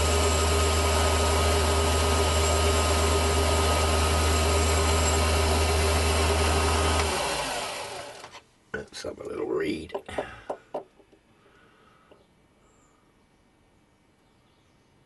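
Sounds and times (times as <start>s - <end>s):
metal lathe humming and whining: 0.0s - 8.3s.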